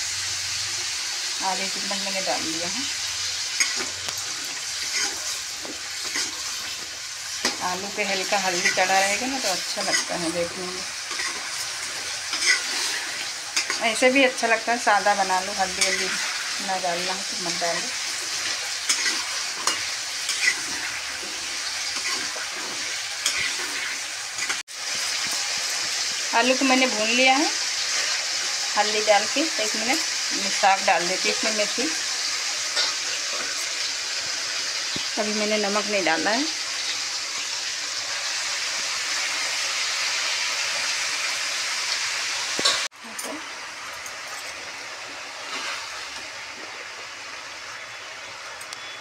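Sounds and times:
potatoes sizzling in oil: 0.0s - 49.0s
metal spoon scraping a pan: 3.4s - 26.0s, 27.8s - 34.3s.

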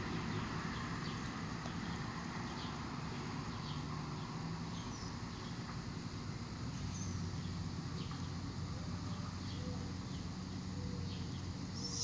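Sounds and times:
low background hum: 0.0s - 12.0s
faint bird chirps: 10.8s - 12.0s.

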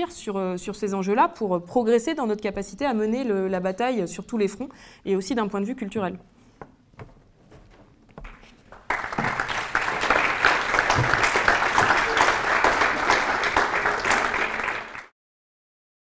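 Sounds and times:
audience applauding: 8.7s - 15.1s.

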